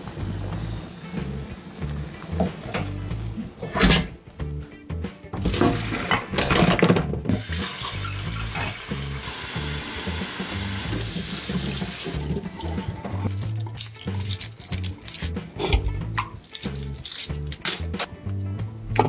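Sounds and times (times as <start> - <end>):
kitchen tap running: 0.0 - 3.1, 7.3 - 14.8
background music: 0.0 - 19.0
water poured into steel bowl: 7.4 - 13.8.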